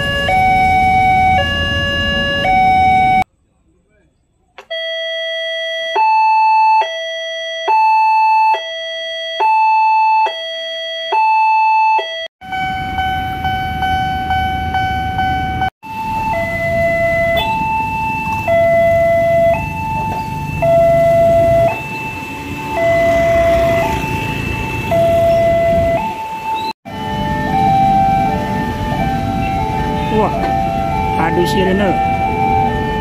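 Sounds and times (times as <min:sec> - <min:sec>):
electronic two-tone alarm: 0:00.0 - 0:03.3, 0:04.6 - 0:33.0
steady alarm tone: 0:00.0 - 0:03.3, 0:04.6 - 0:33.0
street traffic: 0:00.0 - 0:04.9, 0:11.9 - 0:33.0.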